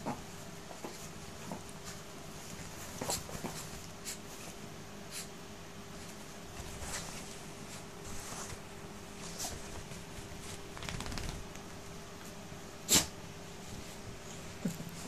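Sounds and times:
faint steady hum: 0.0 - 15.0
paws scrabbling on bedsheet: 0.2 - 5.3, 5.9 - 12.4.

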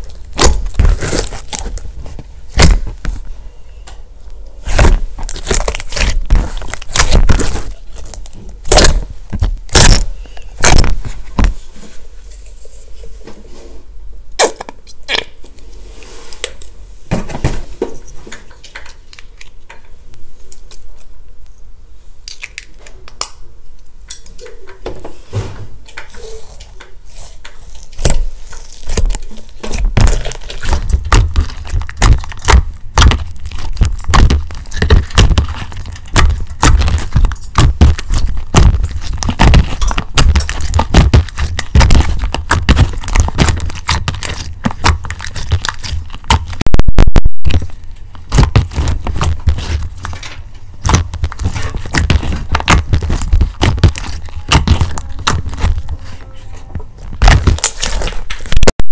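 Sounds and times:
slime squishing and clicking: 28.8 - 46.7, 47.5 - 56.0, 57.2 - 58.1.

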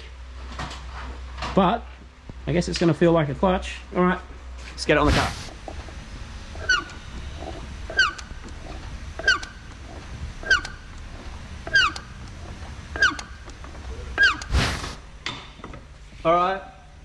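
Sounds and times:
low workshop rumble: 0.0 - 17.0
clutch assembly squeaking: 6.6 - 11.0, 11.6 - 14.5.

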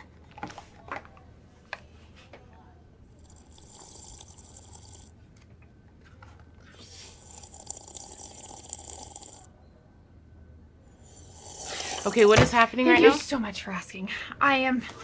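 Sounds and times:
slurping through a straw: 3.2 - 5.1, 6.6 - 9.5, 11.0 - 12.2.

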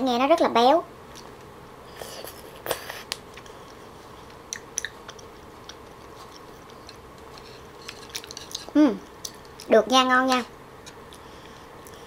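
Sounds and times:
close chewing mouth sounds: 1.9 - 9.7.

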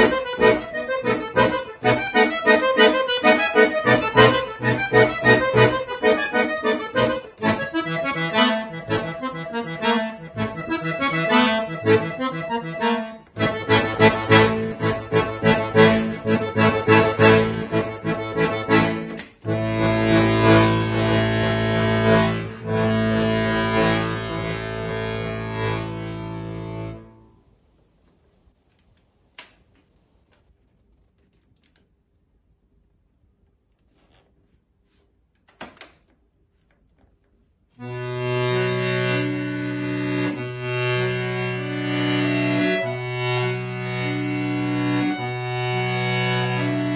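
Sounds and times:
accordion playing: 0.0 - 27.4, 37.8 - 46.9.

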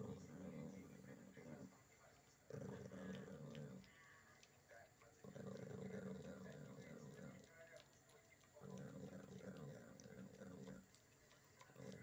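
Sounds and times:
dog growling low: 0.0 - 1.7, 2.5 - 4.1, 5.2 - 7.5, 8.6 - 10.9, 11.7 - 12.0
faint clicks: 2.0 - 12.0.

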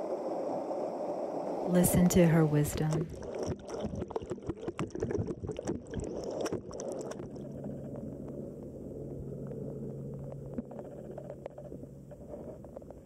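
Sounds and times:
underwater rush of water: 0.0 - 13.0
steady low hum: 0.8 - 3.2, 7.2 - 13.0.

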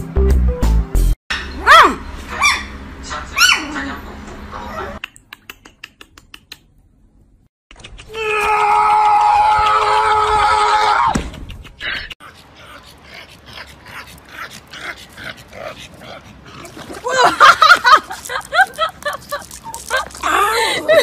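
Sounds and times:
puppy squealing: 1.4 - 2.8, 3.4 - 3.7
puppy yelping: 1.4 - 2.8, 3.4 - 3.7.

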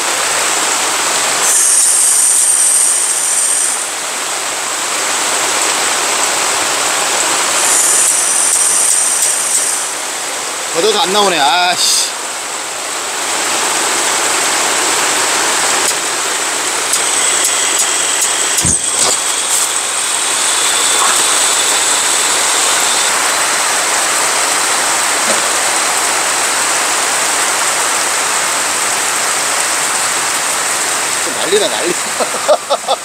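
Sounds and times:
heavy rain falling: 0.0 - 33.0
gas burner running: 1.2 - 4.1, 7.0 - 10.2, 14.4 - 26.1
gas igniting with a thump: 18.6 - 19.8.

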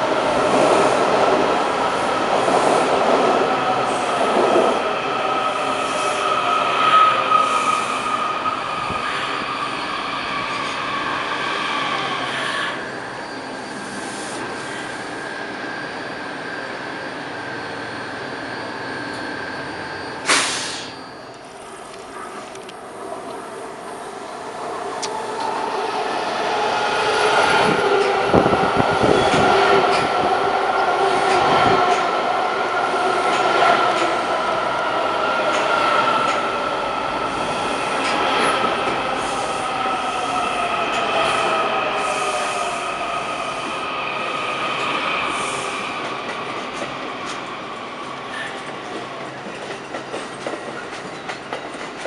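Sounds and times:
train high whine: 0.0 - 52.0
train wheels running: 25.0 - 52.0.

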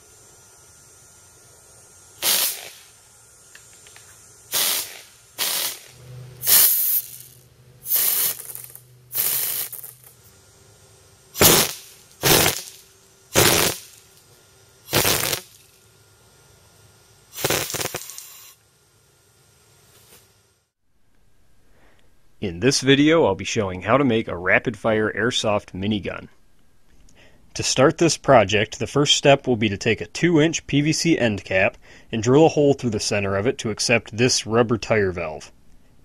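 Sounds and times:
airsoft gun firing bursts: 2.2 - 2.9, 4.5 - 6.9, 11.4 - 12.7, 13.4 - 13.9.

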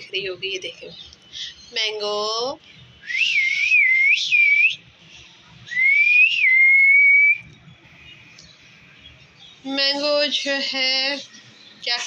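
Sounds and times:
loud whistled phrases: 3.0 - 5.0, 5.6 - 7.5.

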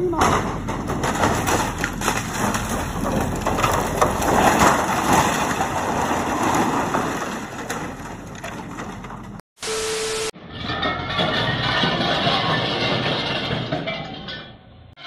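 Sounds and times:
excavator crushing a shed: 0.0 - 9.4, 10.4 - 14.7
sheet metal and wood crunching: 0.0 - 9.4, 10.4 - 15.0
brief steady tone: 9.6 - 10.4.

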